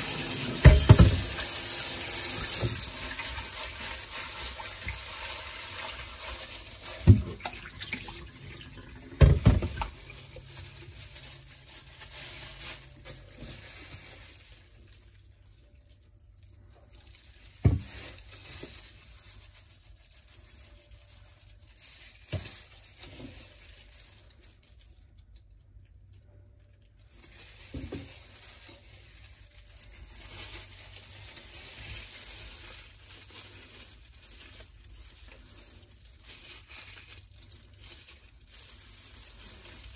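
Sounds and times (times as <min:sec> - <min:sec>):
water splashing in a bowl: 0:00.0 - 0:10.5
plastic gloves crinkling: 0:00.0 - 0:39.9.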